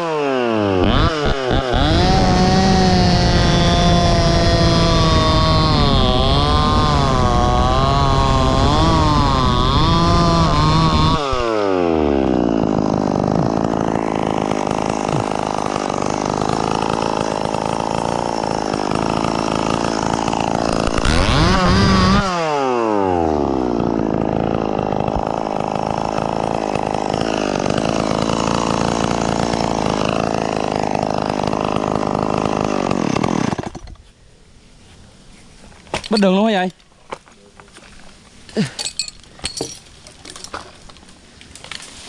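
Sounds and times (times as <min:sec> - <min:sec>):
chainsaw cutting branch: 0:00.0 - 0:34.0.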